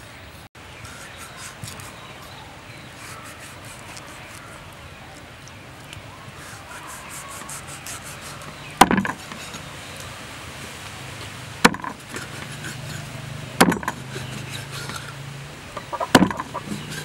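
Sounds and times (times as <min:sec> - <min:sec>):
cleaver chopping on a board: 0:08.8 - 0:09.2, 0:11.6 - 0:12.8, 0:13.6 - 0:14.1, 0:16.1 - 0:16.9.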